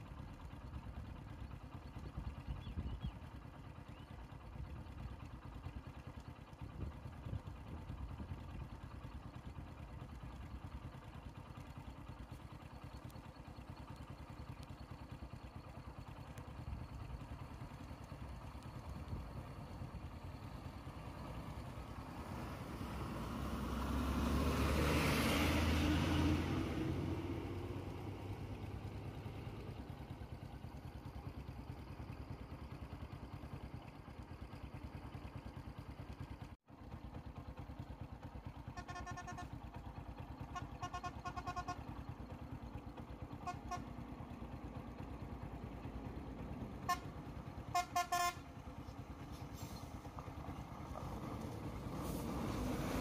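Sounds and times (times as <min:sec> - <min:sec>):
low engine rumble: 0:00.0 - 0:53.0
bus driving past: 0:11.5 - 0:33.9, 0:38.7 - 0:53.0.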